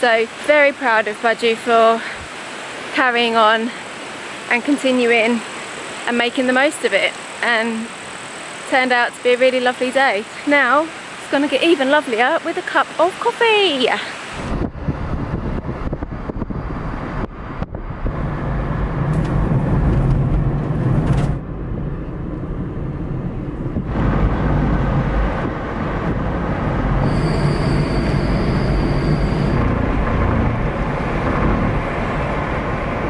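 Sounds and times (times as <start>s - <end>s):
car engine and road noise: 14.1s - 33.0s
thin high tone: 27.0s - 30.4s.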